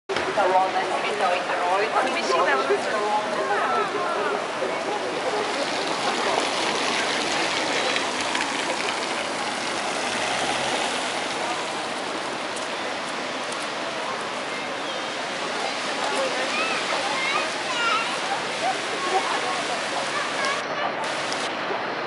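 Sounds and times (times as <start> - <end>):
rain hissing: 5.0 - 21.5
rain splashing on paving: 5.2 - 21.5.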